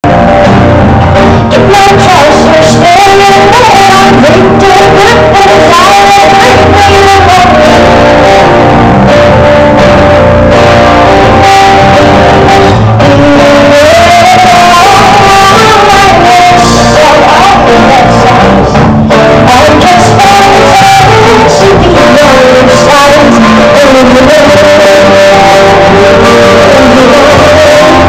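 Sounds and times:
acoustic guitar: 0.0 - 28.0
backing band playing: 0.0 - 28.0
woman singing: 1.5 - 8.6, 12.7 - 28.0.

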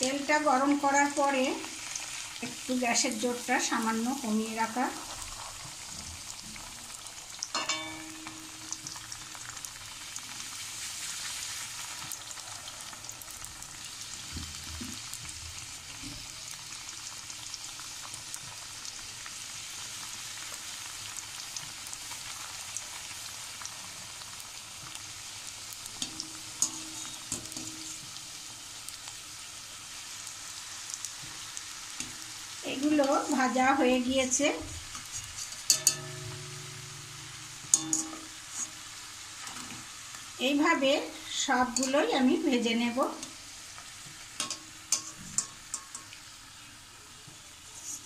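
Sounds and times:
dough deep-frying in oil: 0.0 - 48.0
wire skimmer clinking pan: 7.5 - 9.0, 35.4 - 38.8, 44.4 - 46.2.

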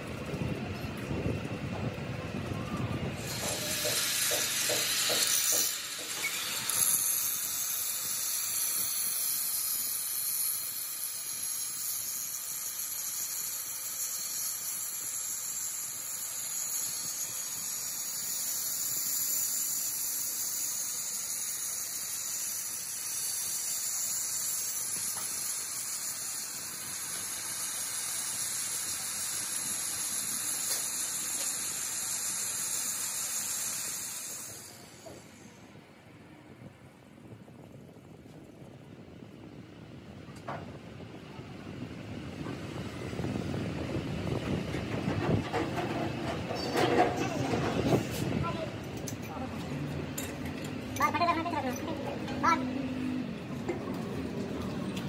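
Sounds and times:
angle grinder grinding steel: 3.2 - 35.5.

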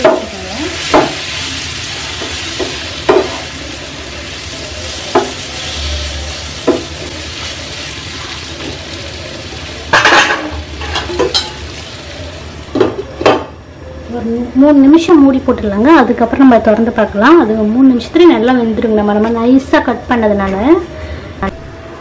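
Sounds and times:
banana slices sizzling in a pan: 0.0 - 12.7.

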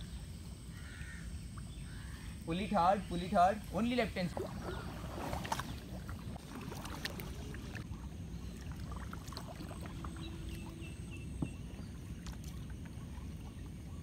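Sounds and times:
kayak paddles dipping and dripping: 0.8 - 14.0
small water splashes: 3.6 - 14.0.

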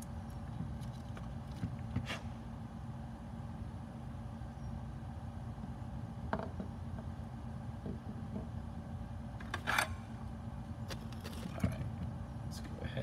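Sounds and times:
steady low hum: 0.0 - 13.0
scrape or rustle: 2.0 - 2.4.

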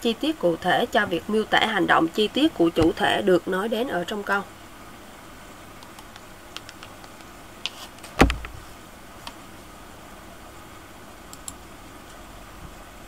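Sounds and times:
faint steady hiss: 0.0 - 13.0
computer mouse clicks: 5.8 - 8.6, 11.3 - 11.6
knock with low thump: 8.2 - 8.6.

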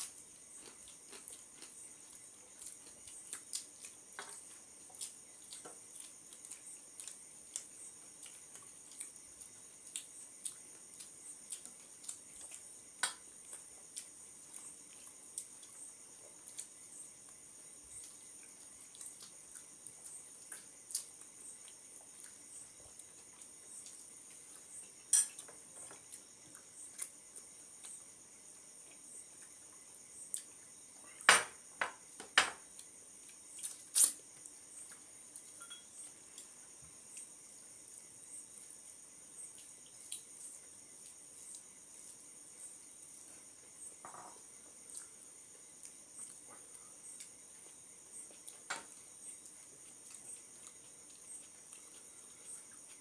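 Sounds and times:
crickets trilling: 0.0 - 53.0
glass and ceramic dishes clinking: 35.6 - 35.9.

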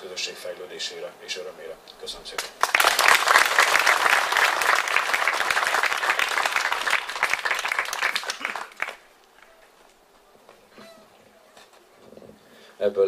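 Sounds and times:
audience applauding: 2.3 - 9.9.

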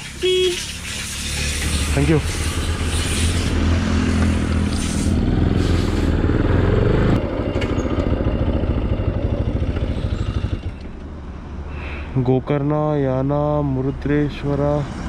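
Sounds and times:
motorcycle engine running: 1.9 - 11.0.

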